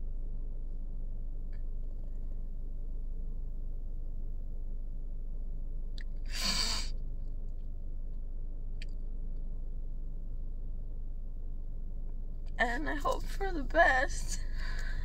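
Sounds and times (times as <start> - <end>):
steady low hum: 0.0 - 15.0
woman sniffling: 6.3 - 6.9.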